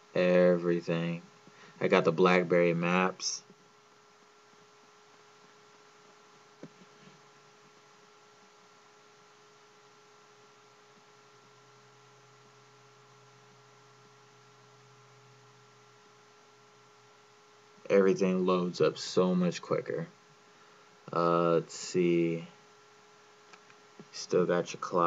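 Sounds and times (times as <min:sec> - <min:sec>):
faint electrical hum: 0:00.0 - 0:25.0
small click: 0:23.5 - 0:24.1.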